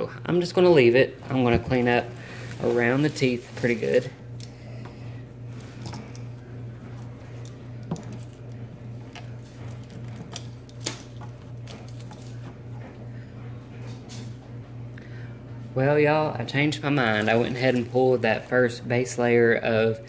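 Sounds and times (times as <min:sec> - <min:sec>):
plastic crinkling: 0:01.8 - 0:04.3, 0:05.5 - 0:12.5, 0:17.0 - 0:18.2.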